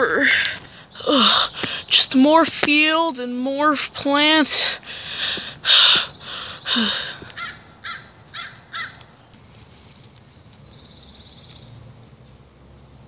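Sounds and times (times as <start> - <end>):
crow cawing: 5.7 - 9.1.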